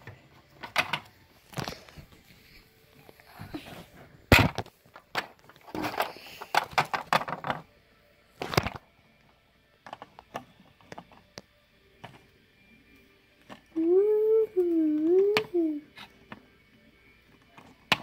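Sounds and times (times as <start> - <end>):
plastic toys clicking and knocking: 0.5 - 1.7, 4.3 - 7.7, 9.8 - 11.4, 17.3 - 18.0.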